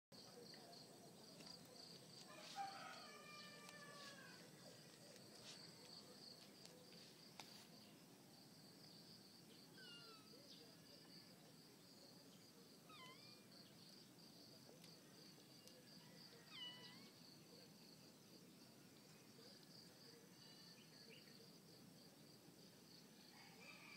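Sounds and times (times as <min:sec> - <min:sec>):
faint cat meows: 0:02.6 - 0:04.4, 0:09.7 - 0:10.4, 0:12.8 - 0:13.5, 0:16.4 - 0:17.2.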